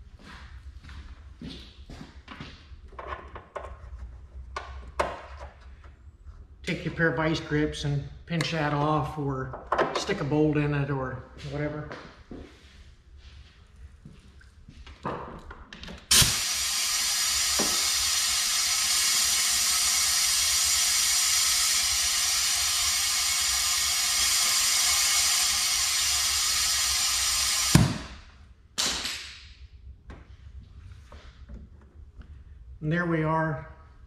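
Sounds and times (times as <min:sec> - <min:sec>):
short blast of air: 0:16.1 - 0:28.2
compressed air hissing: 0:16.1 - 0:28.3.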